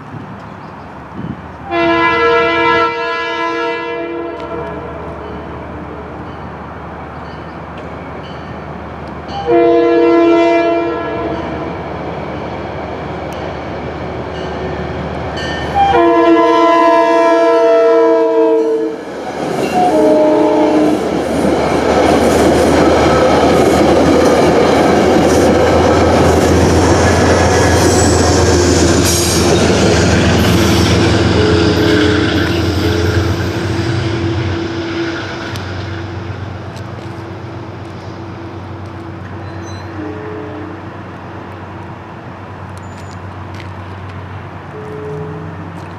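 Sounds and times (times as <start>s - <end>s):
train rushing past with wheel clatter: 0.0s - 45.9s
train horn blasts: 1.6s - 6.3s, 9.4s - 11.8s, 15.7s - 19.0s, 19.7s - 21.1s, 30.3s - 36.4s, 39.8s - 40.8s, 44.7s - 45.6s.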